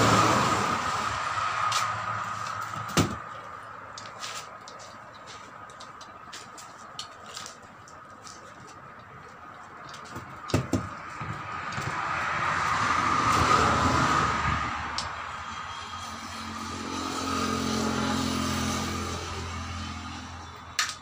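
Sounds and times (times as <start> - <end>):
motor vehicle passing by: 0.0 - 2.8, 11.2 - 20.8.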